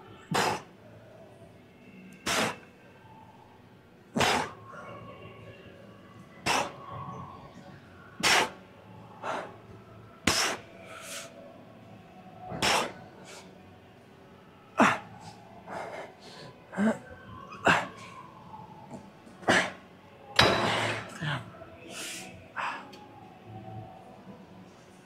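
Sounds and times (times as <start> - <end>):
man breathing hard: 10.3 - 11.4.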